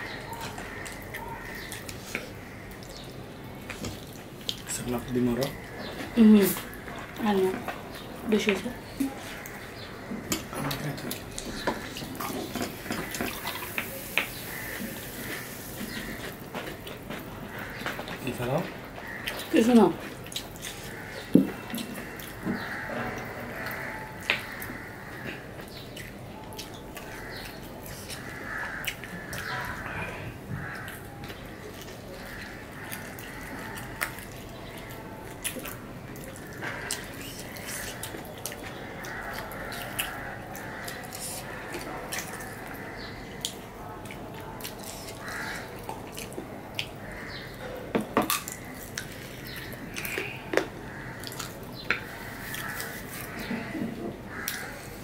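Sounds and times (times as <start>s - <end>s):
wet chewing and lip-smacking: 19.2s - 22.7s, 30.6s - 47.1s.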